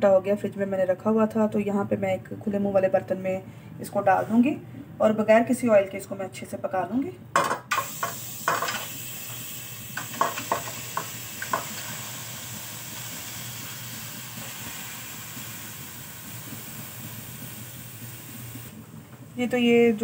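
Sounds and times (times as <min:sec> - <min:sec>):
chicken sizzling in a pan: 0:07.8 - 0:18.7.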